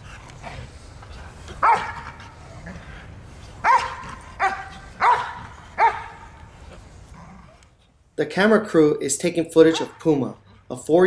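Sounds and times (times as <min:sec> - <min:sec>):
dog barking: 0:01.6 - 0:02.1, 0:03.6 - 0:06.2, 0:09.7 - 0:10.0.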